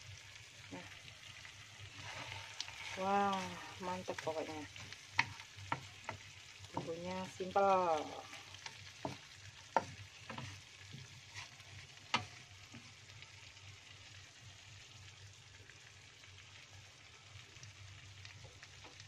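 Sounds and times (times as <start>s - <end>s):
food sizzling in a wok: 0.0s - 19.0s
wooden spatula scraping pan: 1.9s - 12.9s.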